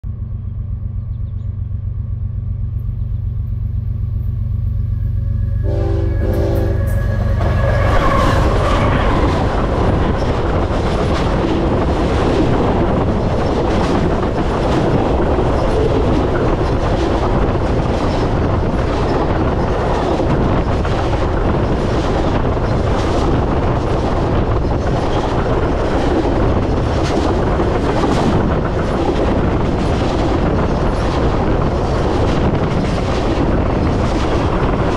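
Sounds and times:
locomotive engine rumbling: 0:00.0 - 0:34.9
train horn: 0:05.1 - 0:10.0
train wheels clattering over track: 0:05.6 - 0:34.9.

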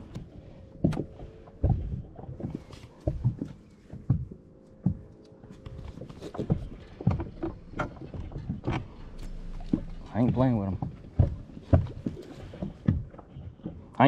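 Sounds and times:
faint steady hum: 0:00.0 - 0:14.0
irregular knocks and thumps: 0:00.0 - 0:14.0.

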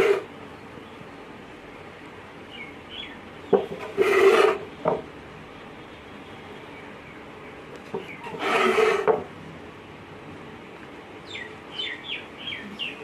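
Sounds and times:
knife scraping on wooden board: 0:00.0 - 0:00.2, 0:03.6 - 0:05.0, 0:07.9 - 0:09.3
small bird chirping: 0:11.2 - 0:13.0.

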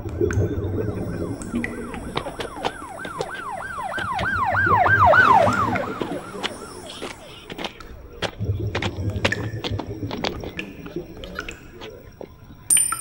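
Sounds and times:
siren yelping: 0:00.4 - 0:08.1.

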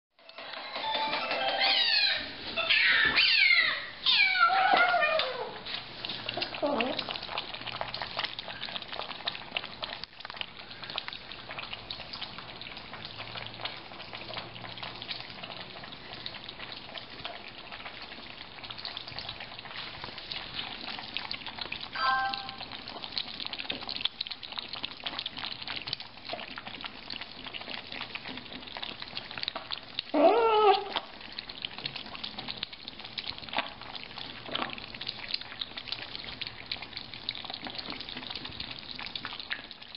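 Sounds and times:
kitten meowing: 0:01.6 - 0:05.5
kittens lapping milk: 0:02.3 - 0:39.9.

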